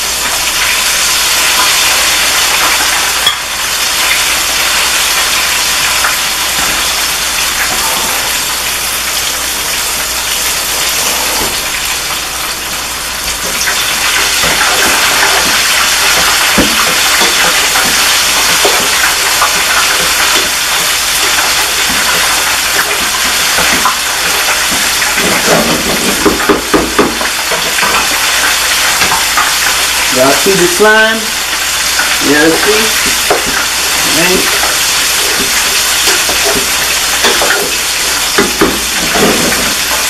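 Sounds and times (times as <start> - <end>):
food sizzling in hot oil: 0.0 - 40.0
wooden spoon stirring pot: 13.4 - 28.4.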